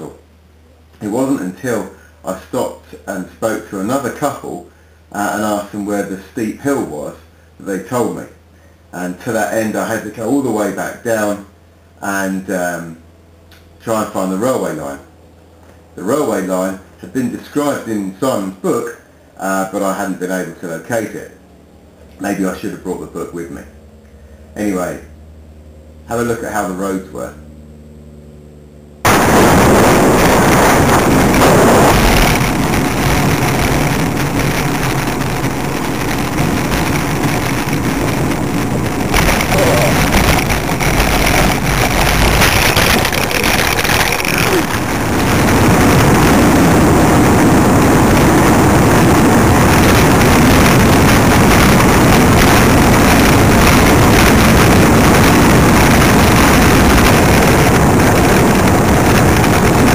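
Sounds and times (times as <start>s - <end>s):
road and tyre noise: 29.0s - 59.9s
wind buffeting on microphone: 29.1s - 59.9s.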